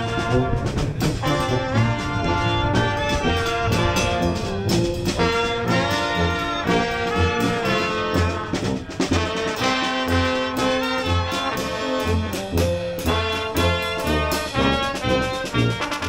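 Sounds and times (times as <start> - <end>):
sousaphone bass pulsing: 0.0 - 9.2
oompah brass band playing: 0.0 - 16.0.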